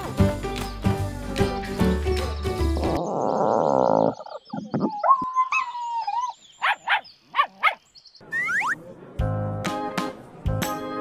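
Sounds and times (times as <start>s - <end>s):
dog barking: 6.6s - 7.8s.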